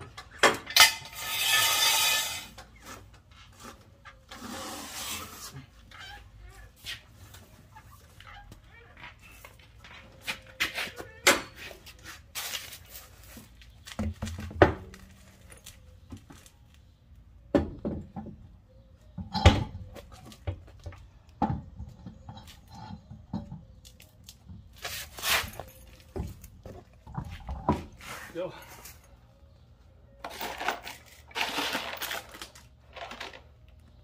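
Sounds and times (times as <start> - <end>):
wheel knocks and scraping: 0.0 - 5.6.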